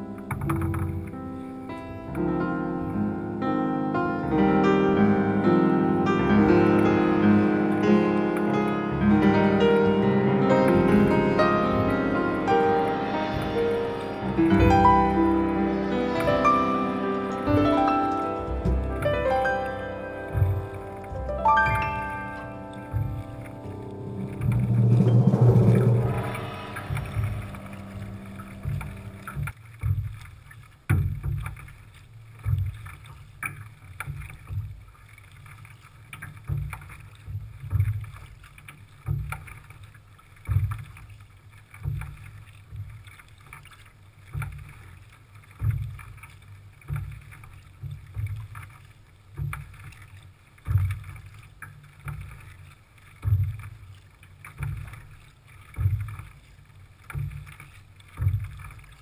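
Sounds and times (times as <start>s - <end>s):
paddle splashing in water: 0.0s - 59.0s
paddle stroke thump: 0.2s - 1.1s, 17.5s - 31.8s, 36.2s - 39.8s, 40.4s - 41.2s, 41.8s - 59.0s
wind hiss: 9.6s - 19.6s, 20.4s - 29.5s.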